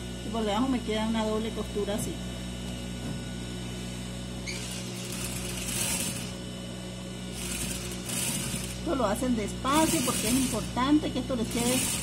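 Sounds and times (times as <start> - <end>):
sewing machine motor humming: 4.4 - 6.4, 7.3 - 12.0.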